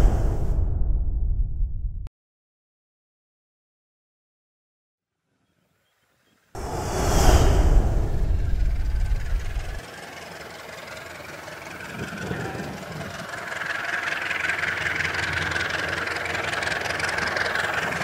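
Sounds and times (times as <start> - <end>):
high whine: 6.6 - 18.0
diesel locomotive engine: 7.9 - 18.0.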